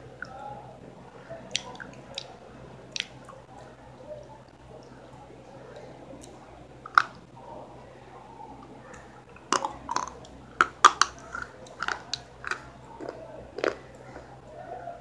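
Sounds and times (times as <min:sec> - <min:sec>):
person crunching crisp food: 0:09.4 - 0:14.4.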